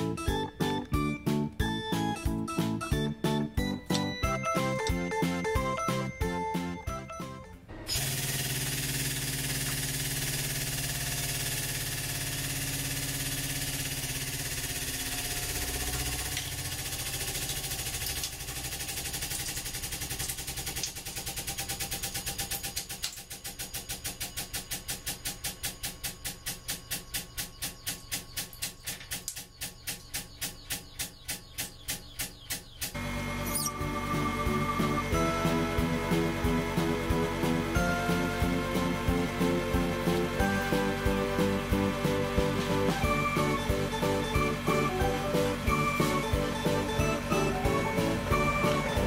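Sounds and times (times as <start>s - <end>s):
hydraulic press humming: 0.0s - 19.2s, 32.9s - 49.0s.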